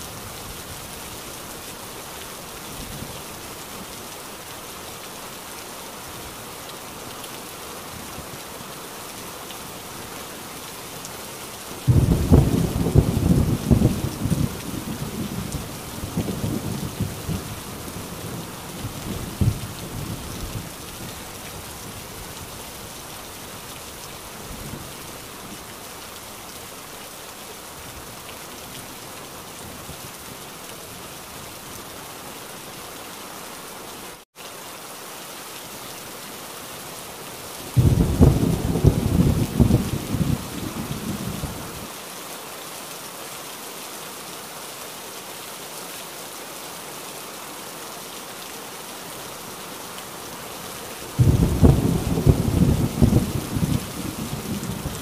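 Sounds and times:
heavy rain: 0.0s - 55.0s
rolling thunder: 11.9s - 17.5s, 37.8s - 41.6s, 51.2s - 55.0s
loud thunderclap: 37.8s - 41.3s, 51.2s - 54.9s.

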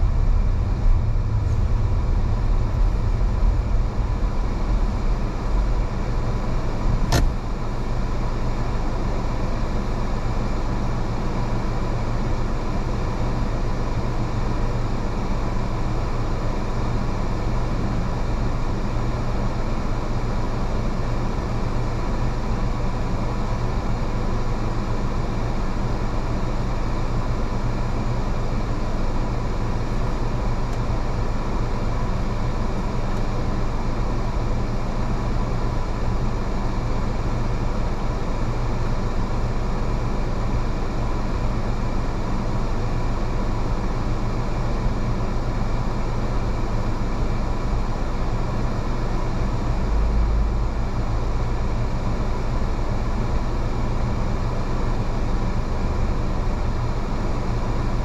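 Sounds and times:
deep rumble: 0.0s - 8.2s
car engine and tyre noise: 0.0s - 58.0s.

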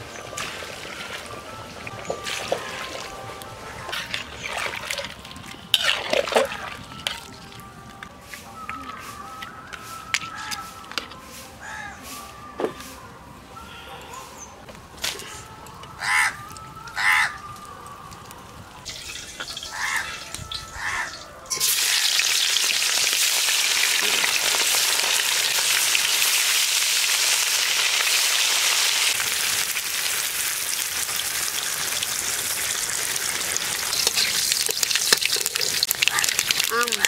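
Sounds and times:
bird calling: 8.8s - 10.8s
fish sizzling in hot oil: 21.5s - 37.0s.

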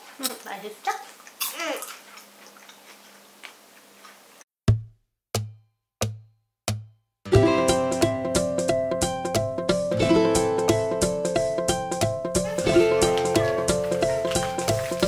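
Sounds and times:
ukulele tune: 7.3s - 15.0s
music intro clicks and thumps: 9.3s - 15.0s.

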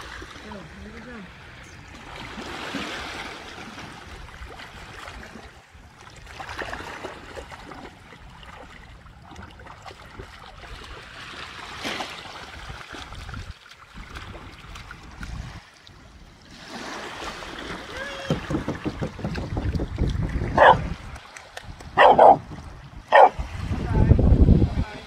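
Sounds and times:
dog wading through water: 0.1s - 18.0s
wind rumble on microphone: 12.5s - 15.7s, 17.9s - 25.0s.

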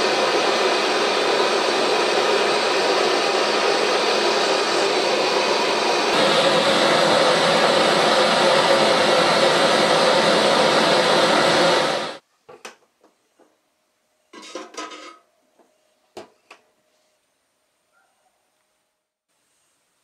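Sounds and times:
hot steel hissing in oil: 0.0s - 12.2s.

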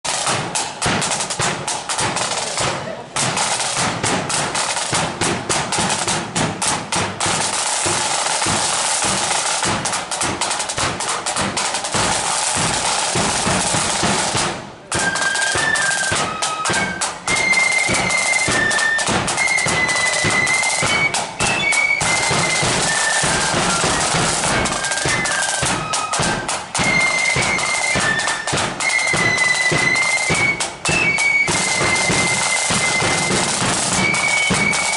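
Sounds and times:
side drums and bass drum beat: 0.0s - 34.9s
flutes playing a tune: 7.2s - 34.9s.

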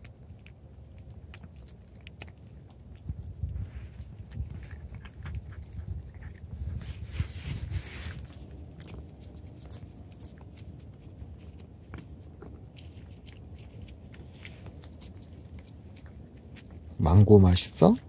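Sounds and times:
cat licking wet clicks: 0.0s - 3.4s.

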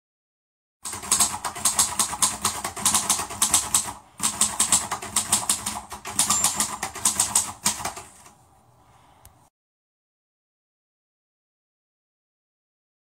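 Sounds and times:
rapid typing on keyboard: 0.8s - 8.4s.

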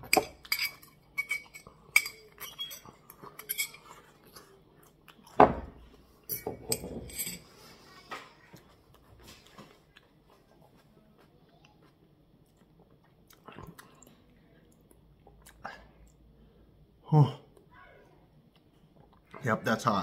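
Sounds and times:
fork clinking against bowl: 0.0s - 4.0s.

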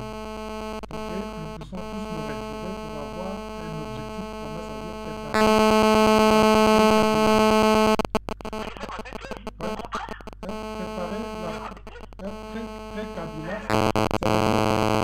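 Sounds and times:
harsh pulsing buzz: 0.0s - 8.6s, 9.4s - 15.0s
crackle: 0.0s - 15.0s
electronic buzzing hum: 0.0s - 15.0s.

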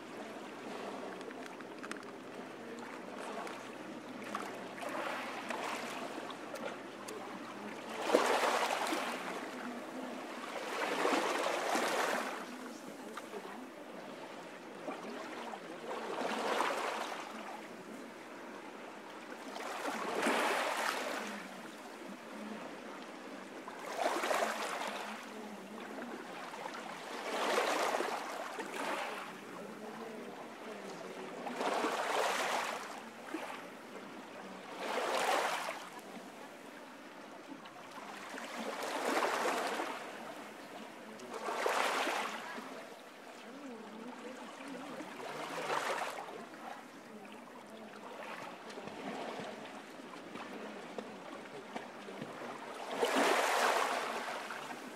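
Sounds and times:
waves breaking on a beach: 0.0s - 54.9s.

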